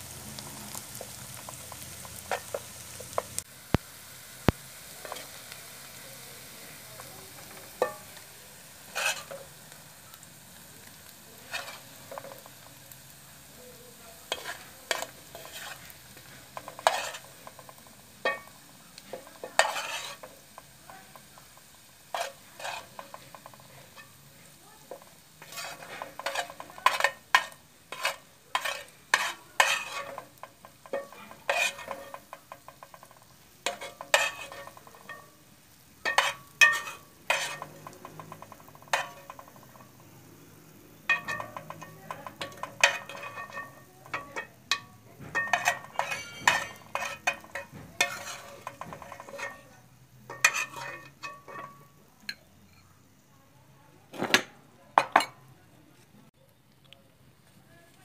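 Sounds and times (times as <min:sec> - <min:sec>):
hot oil sizzling: 0:00.0 - 0:55.6
metal spoon scraping frying pan: 0:00.1 - 0:03.5, 0:04.4 - 0:52.9
spoon clinking against pan: 0:07.0 - 0:08.2, 0:14.3 - 0:24.2, 0:24.9 - 0:35.4, 0:36.0 - 0:40.0, 0:41.0 - 0:52.9.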